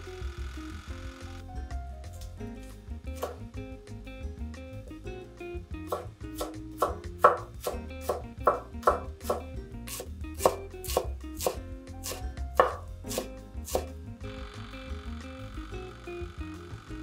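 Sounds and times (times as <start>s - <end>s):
knife slicing on wooden board: 5.9s - 13.9s.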